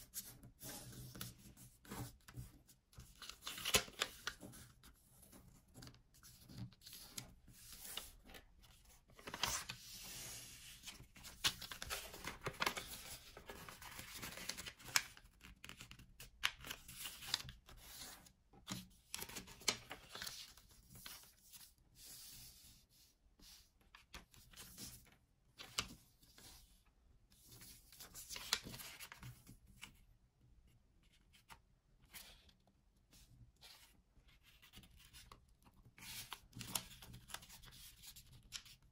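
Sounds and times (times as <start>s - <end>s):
paper rustling: 0.2s - 21.7s.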